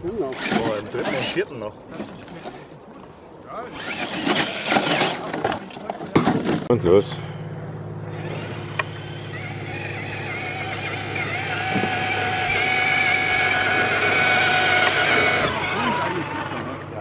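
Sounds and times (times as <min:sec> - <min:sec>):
electric motor and gear whine: 0:00.0 - 0:01.6, 0:03.6 - 0:05.5, 0:07.5 - 0:17.0.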